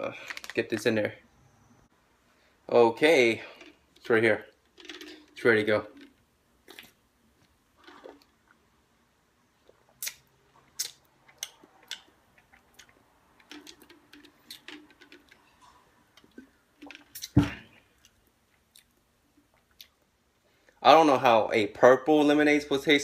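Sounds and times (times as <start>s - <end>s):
lip smacks and mouth clicks: 9.6s - 15.3s, 16.2s - 17.4s, 18.0s - 20.2s
thud: 17.3s - 17.7s.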